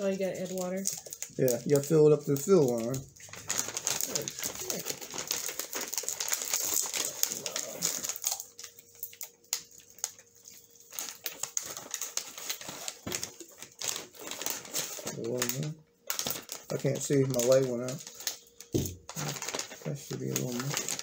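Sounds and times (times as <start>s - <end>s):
plastic and foil packaging crinkling: 0.0s - 21.0s.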